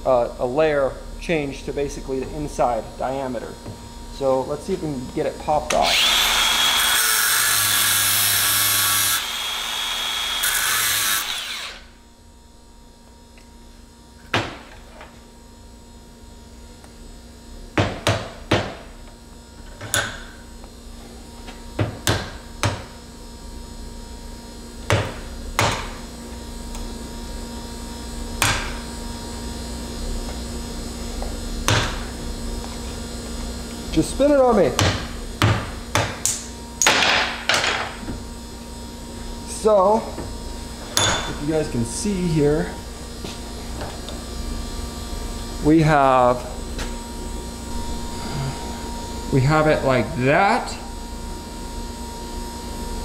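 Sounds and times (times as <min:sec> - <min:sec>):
low steady hum: 0:00.0 - 0:17.8, 0:28.2 - 0:53.0
angle grinder cutting steel: 0:05.8 - 0:11.9.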